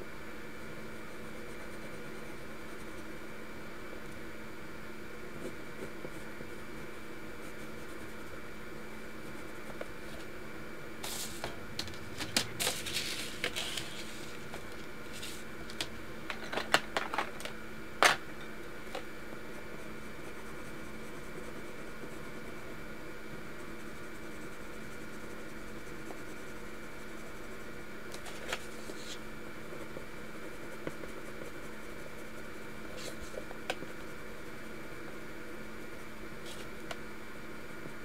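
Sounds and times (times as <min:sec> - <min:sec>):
paper rustle: 0:12.2 - 0:15.4.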